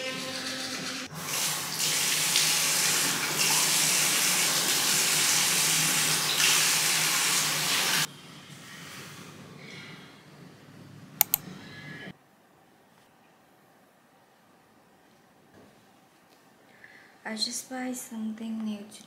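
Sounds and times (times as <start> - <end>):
tap water running into sink: 0.0 - 8.1.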